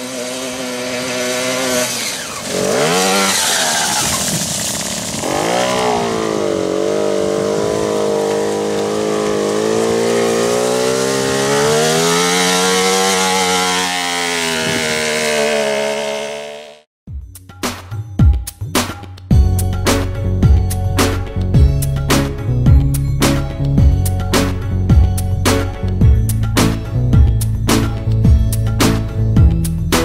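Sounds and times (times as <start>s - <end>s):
small two-stroke engine revving: 0.0s - 16.9s.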